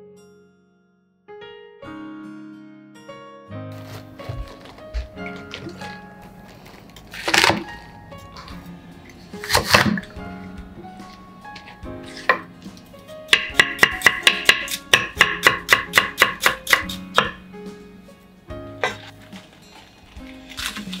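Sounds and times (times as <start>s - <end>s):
knife slicing on wooden board: 9.4s - 10.0s.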